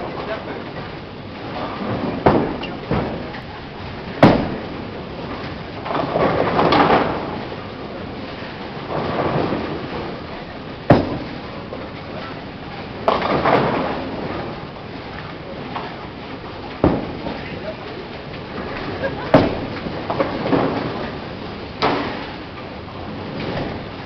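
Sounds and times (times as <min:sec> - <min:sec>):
bowling pins crashing: 0:01.5 - 0:24.0
sharp knock: 0:04.2 - 0:04.6, 0:10.9 - 0:11.2.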